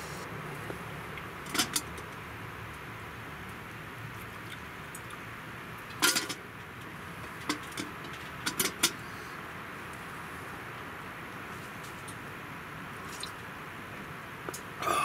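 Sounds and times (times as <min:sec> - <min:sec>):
faint steady hiss: 0:00.0 - 0:01.3.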